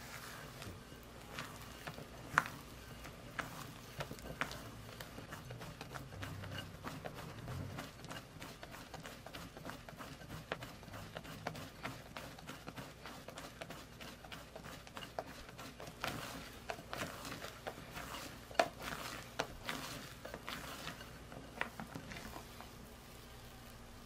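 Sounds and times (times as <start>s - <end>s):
spatula scraping batter in bowl: 0.0s - 23.5s.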